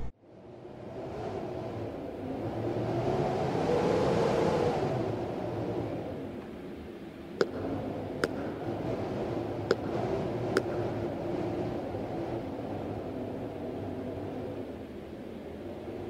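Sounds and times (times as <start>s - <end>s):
low background rumble: 4.9s - 16.0s.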